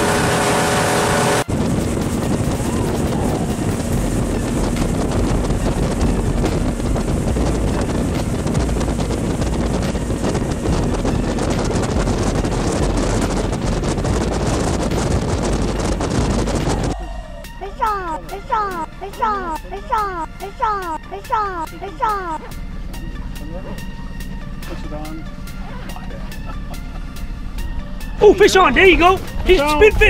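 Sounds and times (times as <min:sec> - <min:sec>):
wind rumbling on microphone: 0:00.0 - 0:17.5
boat noise: 0:00.0 - 0:30.0
water beneath boat: 0:00.0 - 0:30.0.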